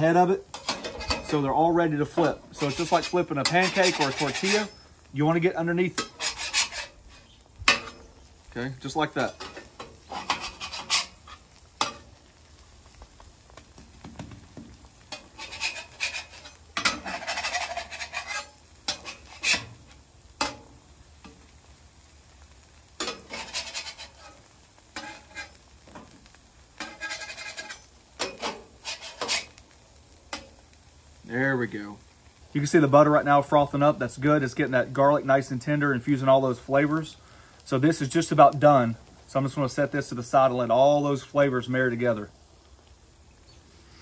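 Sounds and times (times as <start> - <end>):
metal spatula scraping griddle: 0.0 - 13.0, 14.2 - 21.5, 22.6 - 29.7, 30.3 - 30.6
faint sizzling: 0.0 - 44.0.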